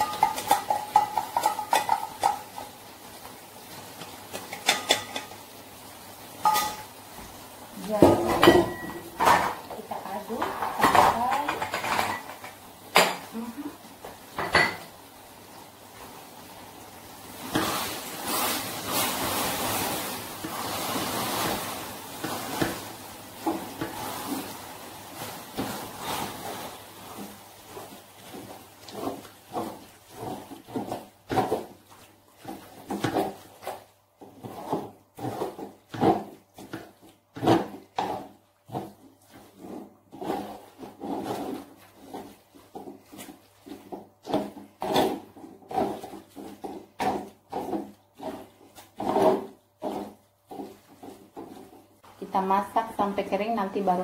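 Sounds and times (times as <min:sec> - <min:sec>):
spatula scraping a wok: 0:00.0 - 0:05.6, 0:06.2 - 0:07.0, 0:17.3 - 0:52.4
sizzling stirring: 0:00.0 - 0:54.0.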